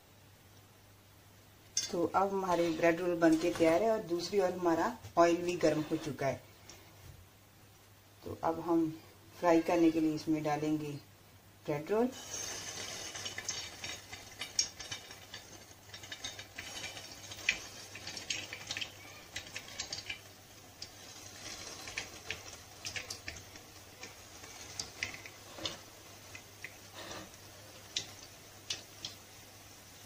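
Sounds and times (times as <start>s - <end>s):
food deep-frying in hot oil: 1.7s - 6.4s, 11.6s - 30.0s
oil crackling and popping: 12.2s - 30.0s.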